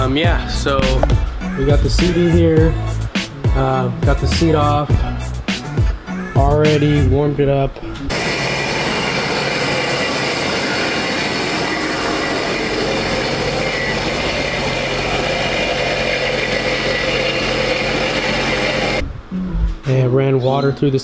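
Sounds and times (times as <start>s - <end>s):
jet ski engine idling: 8.1s - 19.0s.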